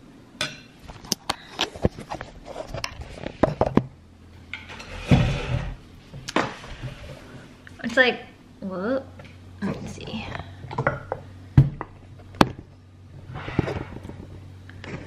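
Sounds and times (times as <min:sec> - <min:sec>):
heavier kitchen noise: 0:00.0 - 0:08.4, 0:09.0 - 0:15.0.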